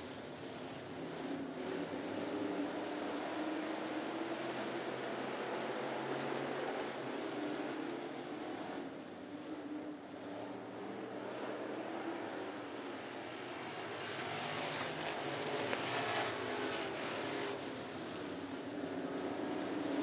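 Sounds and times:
race car engines droning: 0:00.0 - 0:20.0.

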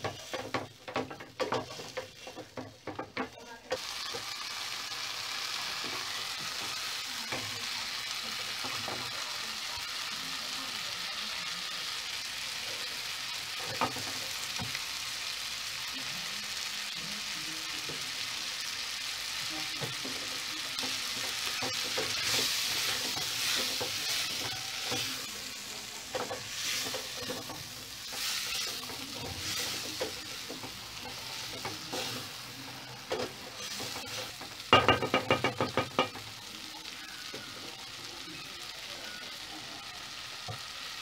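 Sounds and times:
wooden spoon stirring beans in pot: 0:00.0 - 0:03.8, 0:26.0 - 0:36.2
spoon knocking on metal pot: 0:34.7 - 0:36.2.

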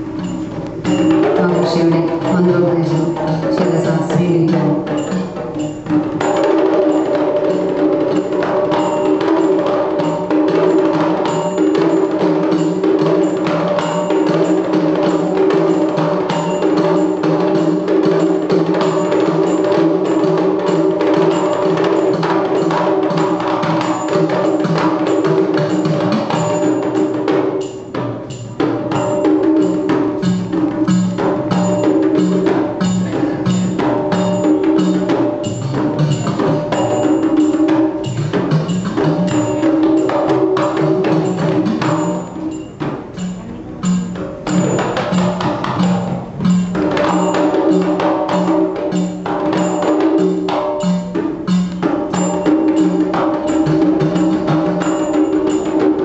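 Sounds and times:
sustained pitched drum tones: 0:00.0 - 0:09.5
temple drums playing rhythm: 0:00.0 - 0:56.0.

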